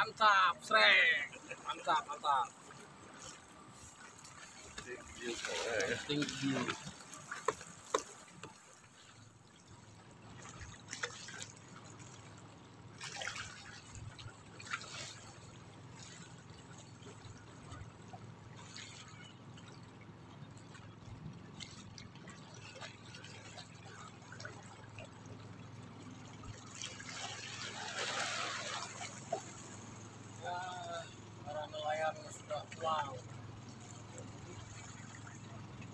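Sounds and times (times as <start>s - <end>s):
waves splashing against rocks: 0.6s - 9.7s, 26.5s - 30.6s.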